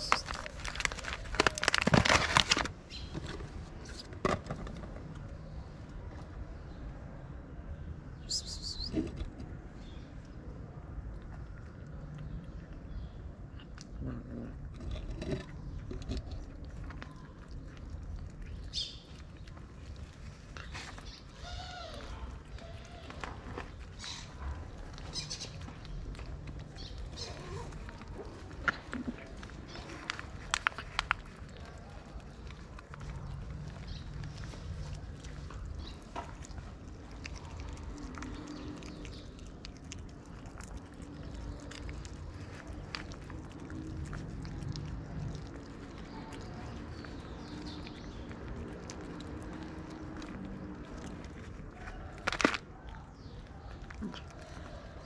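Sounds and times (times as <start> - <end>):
kittens chewing: 0.0 - 7.2, 8.6 - 55.0
small irregular clicks: 22.0 - 53.0.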